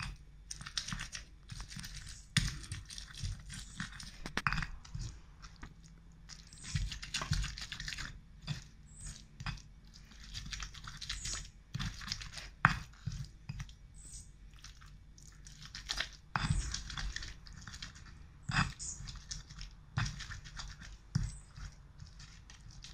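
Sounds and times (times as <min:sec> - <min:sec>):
pestle crushing in stone mortar: 0:00.0 - 0:13.9, 0:14.6 - 0:22.9.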